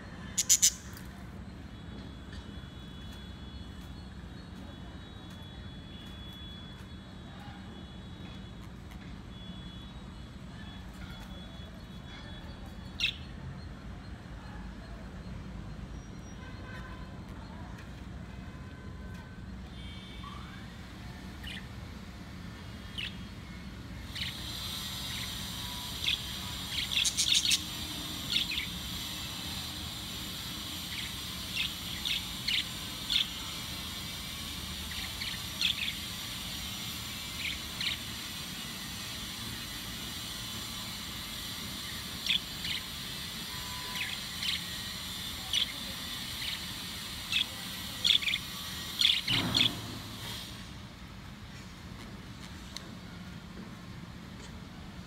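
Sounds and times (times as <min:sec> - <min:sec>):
budgerigars chirping: 0:00.3 - 0:01.0, 0:24.1 - 0:34.2, 0:43.9 - 0:50.2.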